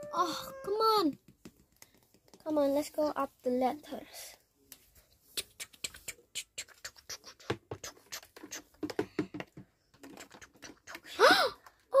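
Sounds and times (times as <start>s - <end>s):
plastic dolls tapping and clicking: 0.0s - 2.6s, 5.4s - 12.0s.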